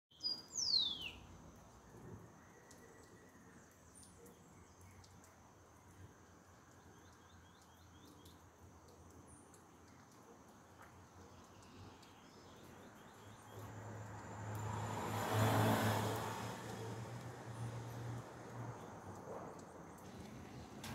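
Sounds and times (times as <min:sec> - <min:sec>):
passing vehicle hum: 0:13.6 - 0:20.8.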